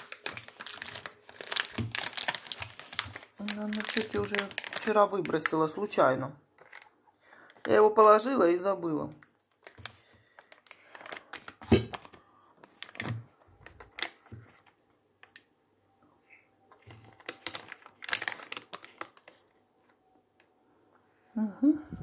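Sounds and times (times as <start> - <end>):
foil wrapper crinkling: 0.0 - 6.0, 6.6 - 7.8, 9.1 - 14.8, 16.8 - 20.0.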